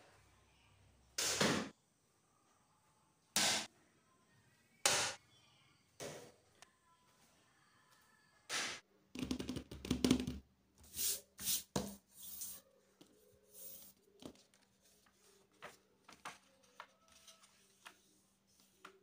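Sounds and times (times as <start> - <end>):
paper rustling: 13.5 - 19.0
paper taps and crinkles: 14.2 - 19.0.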